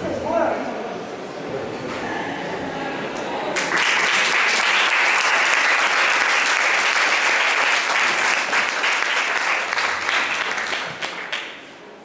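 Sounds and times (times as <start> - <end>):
audience applauding: 3.5 - 11.8.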